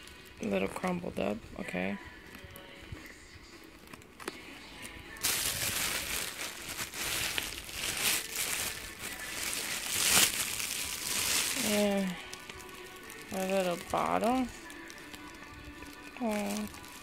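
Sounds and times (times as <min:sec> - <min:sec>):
plastic wrapping crinkling: 0:03.6 - 0:17.0.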